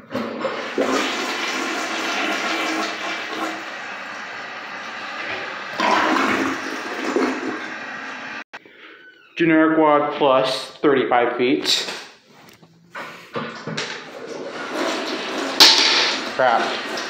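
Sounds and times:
toilet flushing: 0.0s - 8.4s, 13.5s - 17.0s.

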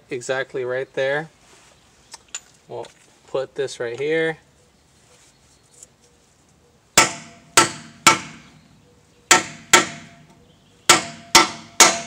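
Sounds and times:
hammer striking metal driver: 7.0s - 8.4s, 9.3s - 12.0s.

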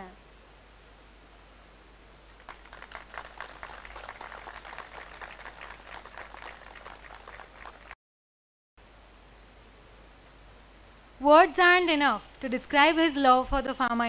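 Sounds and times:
audience applauding: 2.4s - 8.0s.

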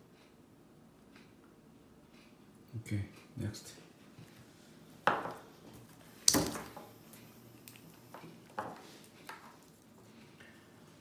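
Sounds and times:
hard object knocked on wooden desk: 5.1s - 5.4s.

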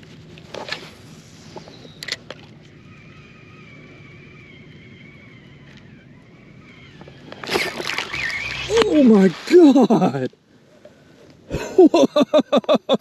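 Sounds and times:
fishing reel whirring: 1.2s - 9.2s.

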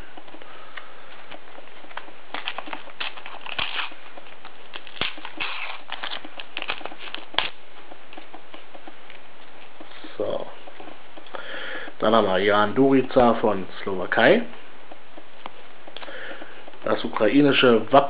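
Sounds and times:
foil packet crinkling and tearing: 2.3s - 7.6s.

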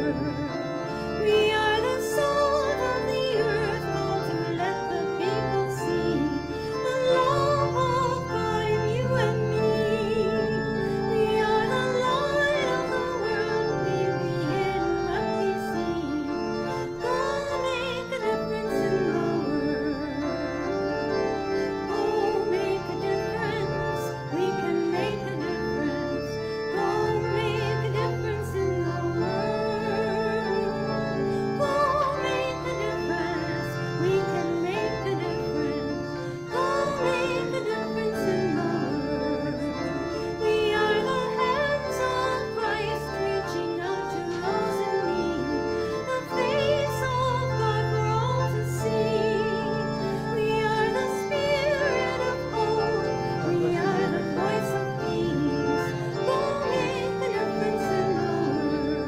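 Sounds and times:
person singing with vibrato: 0.0s - 20.8s, 21.5s - 59.0s
sustained organ chords: 0.0s - 59.0s.

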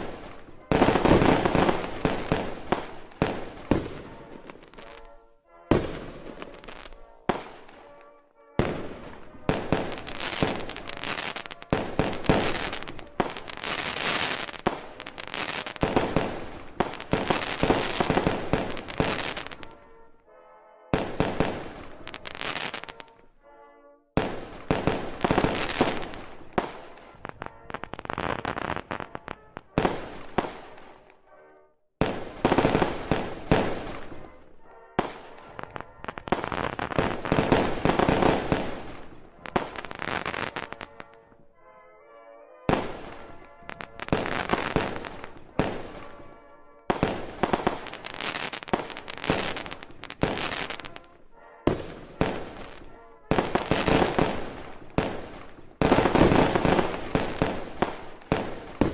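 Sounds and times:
fireworks booming: 0.0s - 7.9s, 8.6s - 20.0s, 32.0s - 41.2s, 51.7s - 58.9s
fireworks crackling: 0.0s - 20.0s, 21.0s - 23.2s, 24.2s - 31.1s, 32.0s - 41.2s, 42.7s - 58.9s.

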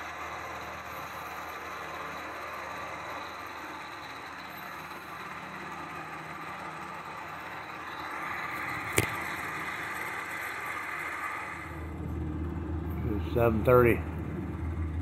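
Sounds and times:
helicopter engine and rotor: 0.0s - 15.0s
sharp click: 8.6s - 9.2s.

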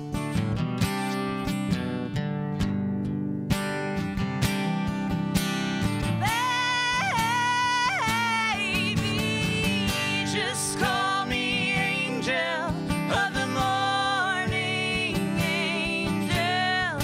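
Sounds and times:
strummed acoustic guitar: 0.0s - 17.0s
woman singing lead: 6.1s - 17.0s
man singing along: 6.2s - 17.0s.

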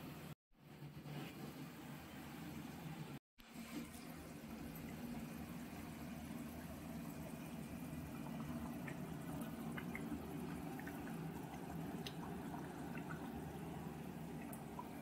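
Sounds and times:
curry simmering and bubbling: 3.5s - 15.0s.

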